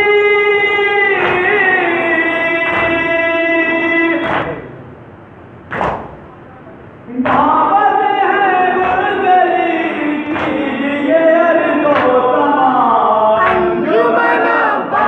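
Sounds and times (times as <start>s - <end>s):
men chanting in unison: 0.0s - 4.7s, 7.1s - 15.0s
hands slapping chests: 4.2s - 4.6s, 5.7s - 6.3s, 10.3s - 10.7s.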